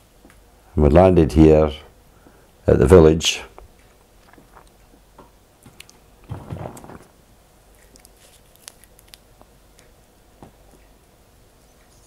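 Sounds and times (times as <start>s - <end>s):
soft mouth noises: 3.5s - 7.1s
soft rustle: 5.7s - 9.2s.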